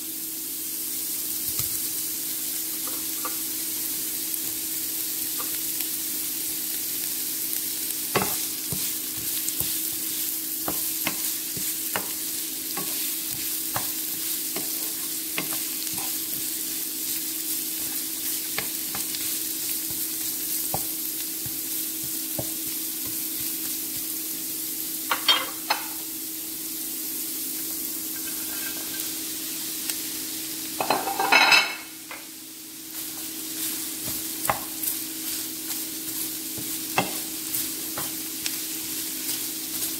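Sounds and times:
vegetables sizzling in a frying pan: 0.0 - 39.9
wooden spatula scraping a pan: 8.2 - 16.5, 28.2 - 29.1.

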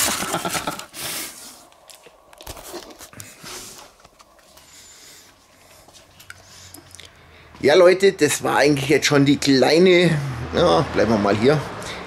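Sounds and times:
rustling and scraping in a box: 0.0 - 4.6.

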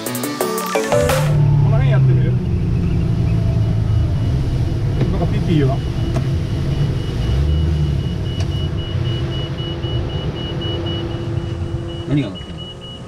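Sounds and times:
low engine rumble: 1.4 - 13.0
electronic alarm beeping: 6.7 - 13.0.

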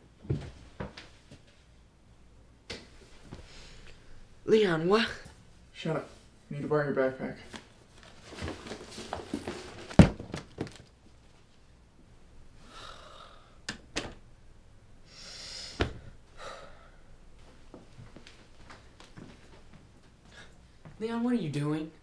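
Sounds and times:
backpack rustling: 7.9 - 10.9
backpack thump: 9.8 - 10.8
breathy sighs: 12.6 - 13.6, 15.1 - 17.1.

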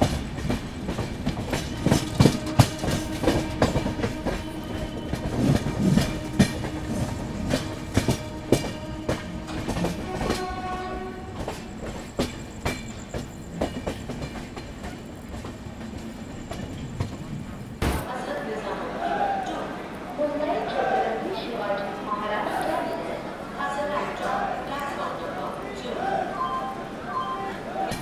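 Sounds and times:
train wheels clattering: 0.0 - 18.1.

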